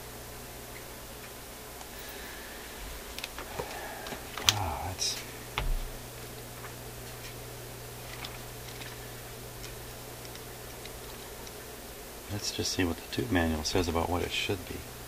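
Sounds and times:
steady low hum: 0.0s - 15.0s
low thump: 5.6s - 6.0s
paper rustle: 8.0s - 11.5s
faint regular ticking: 8.1s - 13.2s.

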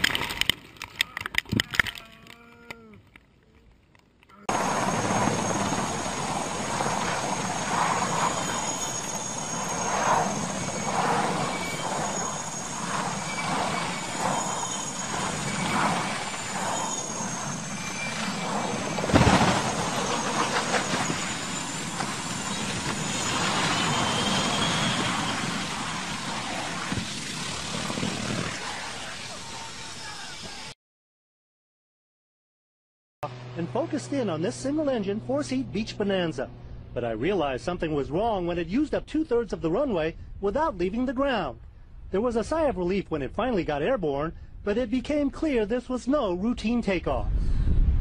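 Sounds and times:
helicopter turbine and rotor: 4.5s - 30.7s, 33.2s - 39.0s
rushing noise: 4.5s - 30.8s
loud crash: 9.8s - 29.2s.

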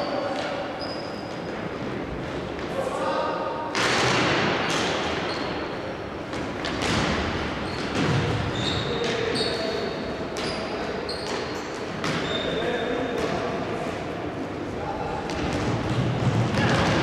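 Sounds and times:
shoe squeaks: 0.0s - 1.6s, 5.3s - 5.6s, 7.6s - 12.9s.

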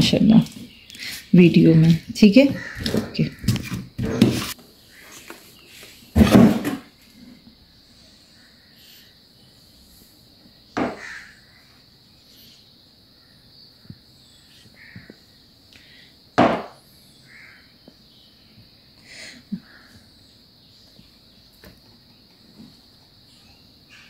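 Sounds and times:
knocks on kitchen worktop: 16.4s - 16.8s.

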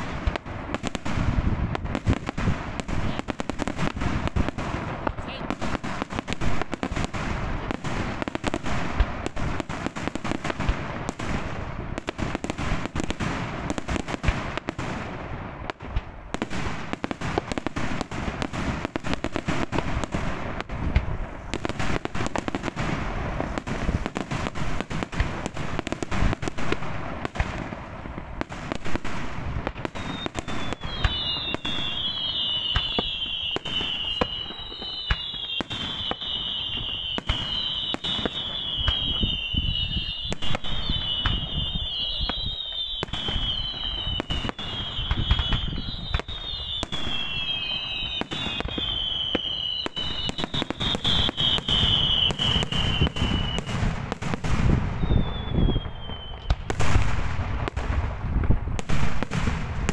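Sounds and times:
fireworks bangs and crackles: 0.0s - 59.9s
whistling fireworks shells: 29.7s - 57.8s.

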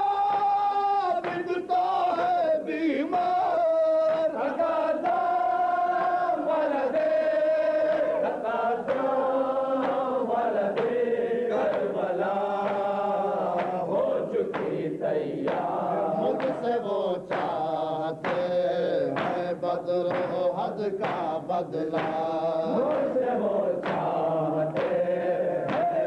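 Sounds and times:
man chanting: 0.0s - 4.6s, 15.8s - 24.8s.

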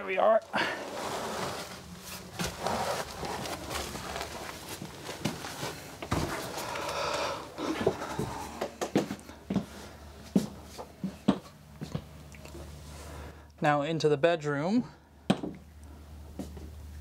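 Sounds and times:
rustling and handling noise: 0.3s - 13.4s.

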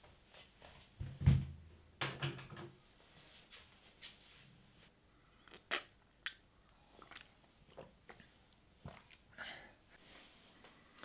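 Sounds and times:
person sipping and swallowing: 6.7s - 8.3s
soft breath: 9.3s - 11.0s.

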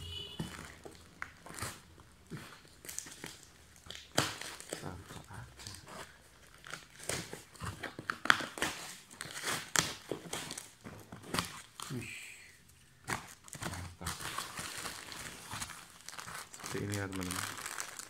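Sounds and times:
cardboard box crinkling and scraping: 4.3s - 11.9s, 13.2s - 18.0s.

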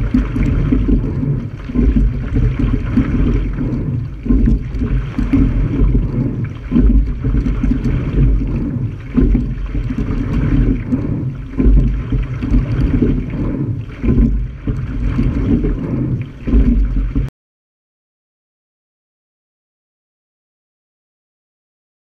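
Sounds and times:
water rushing along hull: 0.0s - 17.3s
wind buffeting microphone: 0.0s - 17.3s.

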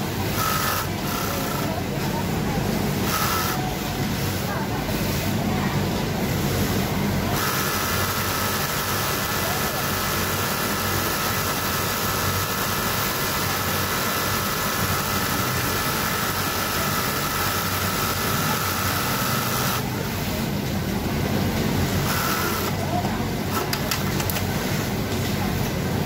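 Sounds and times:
factory floor hum: 0.0s - 26.0s
sewing machine motor whine: 0.3s - 1.7s, 7.3s - 19.9s, 22.0s - 22.8s.

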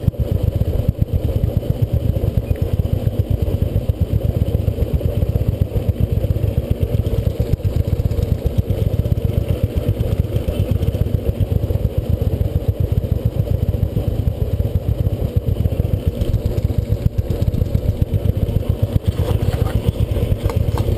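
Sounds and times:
motorcycle engine idling: 0.0s - 20.9s.

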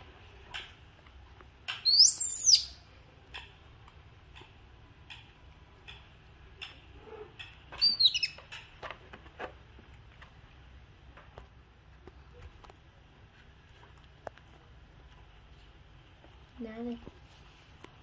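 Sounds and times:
baby monkey crying: 1.8s - 2.8s, 7.8s - 8.4s.

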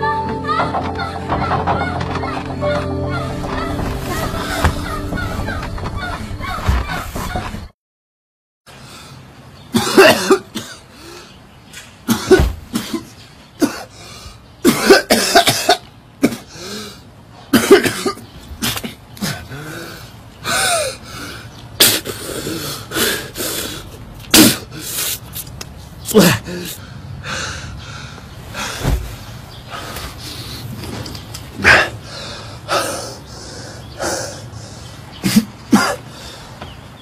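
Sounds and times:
man coughing hard: 9.7s - 10.9s, 12.1s - 13.9s, 14.6s - 16.5s, 17.5s - 19.5s, 35.2s - 36.1s
strained breaths: 26.4s - 36.9s.

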